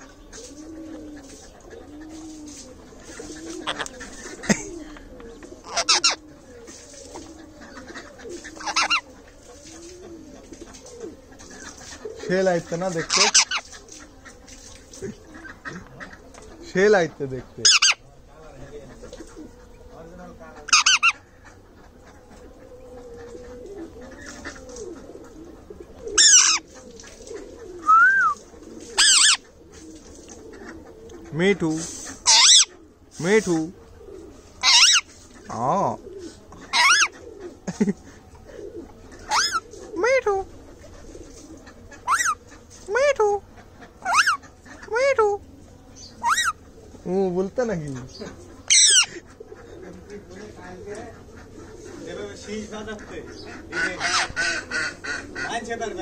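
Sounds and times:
faint low cooing: 0:00.0 - 0:16.8, 0:17.4 - 0:47.2
parakeet loud calls: 0:03.1 - 0:04.7, 0:05.6 - 0:06.3, 0:07.6 - 0:09.2, 0:11.4 - 0:16.6, 0:17.6 - 0:18.1, 0:20.5 - 0:25.0, 0:26.1 - 0:27.6, 0:28.8 - 0:29.5, 0:32.0 - 0:33.4, 0:34.6 - 0:35.6, 0:36.2 - 0:37.4, 0:39.1 - 0:40.0, 0:41.8 - 0:45.2, 0:46.0 - 0:46.7, 0:47.8 - 0:56.0
low humped call: 0:19.0 - 0:33.1, 0:33.7 - 0:47.0.

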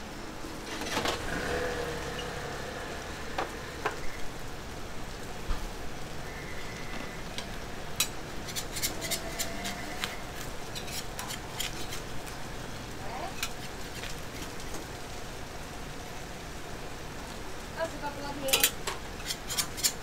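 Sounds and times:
dumplings sizzling in a pan: 0:01.2 - 0:20.0
tongs and spatula clicking on pan: 0:18.5 - 0:20.0.

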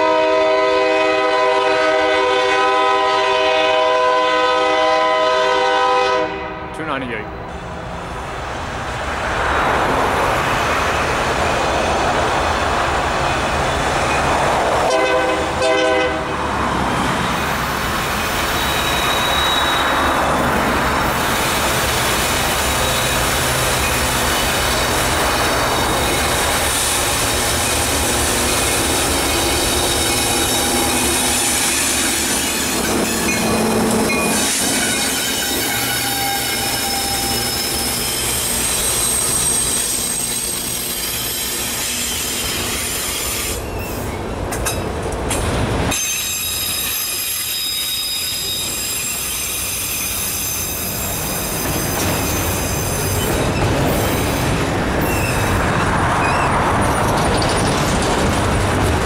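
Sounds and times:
train horn: 0:00.0 - 0:06.8, 0:14.8 - 0:16.3, 0:33.6 - 0:37.7
freight train rumbling past: 0:00.0 - 0:59.0.

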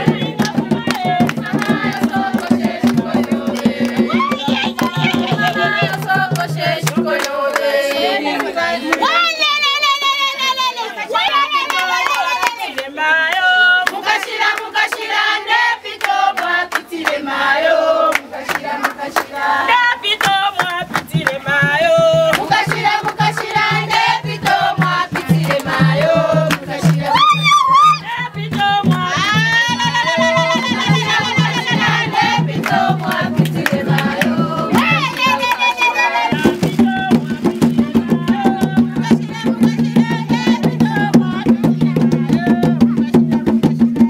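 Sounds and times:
steady beat: 0:00.0 - 0:08.2, 0:20.2 - 0:44.0
rhythmic handclaps: 0:00.0 - 0:09.4, 0:11.3 - 0:44.0
group of voices singing: 0:00.0 - 0:44.0.

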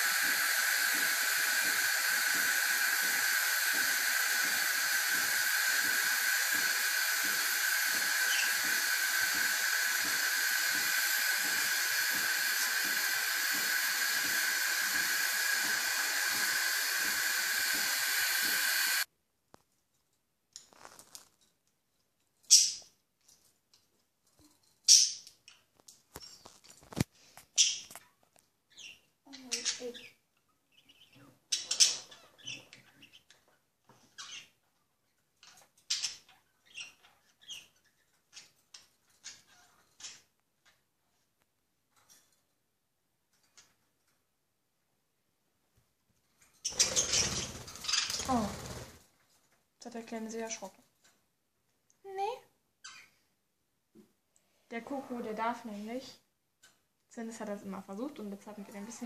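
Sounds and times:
steady hiss: 0:00.0 - 0:19.1
cage birds chirping: 0:28.6 - 0:34.7, 0:35.4 - 0:40.3, 0:46.5 - 0:49.0, 0:52.8 - 0:53.2.

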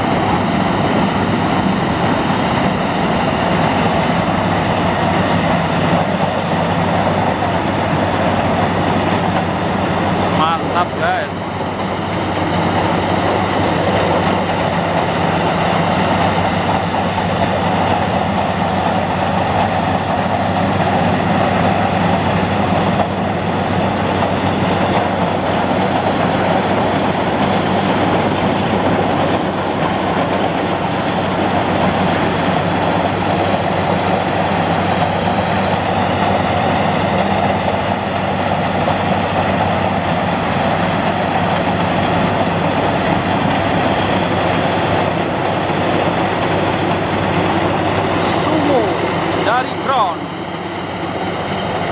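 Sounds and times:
combine harvester engine drone: 0:00.0 - 0:51.9
cutting and threshing machinery: 0:00.0 - 0:51.9.

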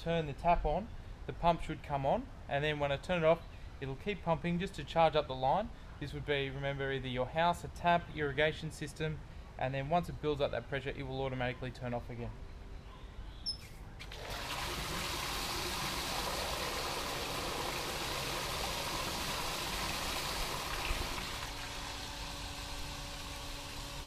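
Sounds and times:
water gushing from tap: 0:14.0 - 0:24.0.

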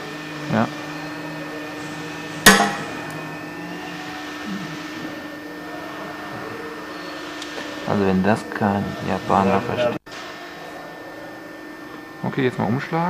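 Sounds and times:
low electrical hum: 0:00.0 - 0:13.0
sharp hammer blow: 0:02.4 - 0:03.6.

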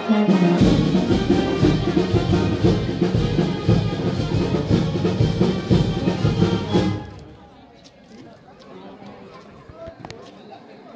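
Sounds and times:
brass band music: 0:00.0 - 0:07.4.

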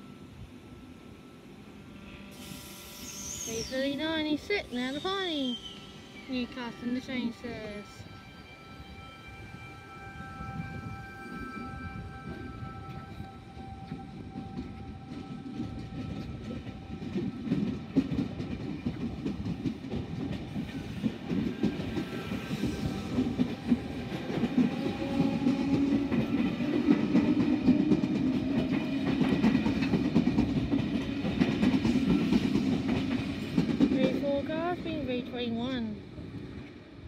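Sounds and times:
train rumble: 0:00.0 - 0:37.0
train wheels clicking over rails: 0:13.8 - 0:35.5.

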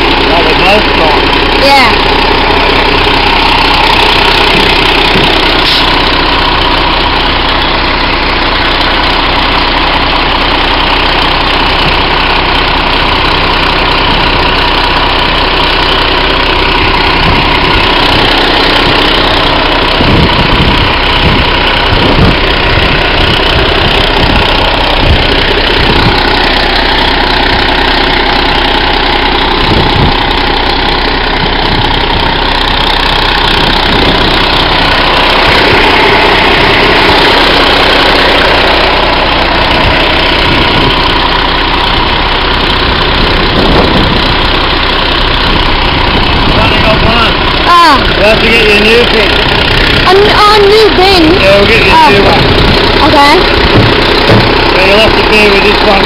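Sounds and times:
diesel truck engine idling: 0:00.0 - 0:56.0
irregular knocks and clunks: 0:04.5 - 0:05.8, 0:53.6 - 0:54.7.

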